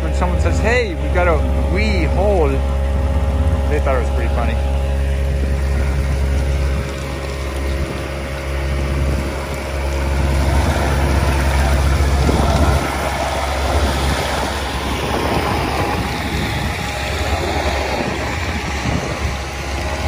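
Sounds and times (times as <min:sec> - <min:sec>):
air and water rushing through suction: 0:00.0 - 0:20.0
engine and blower drone: 0:00.0 - 0:20.0.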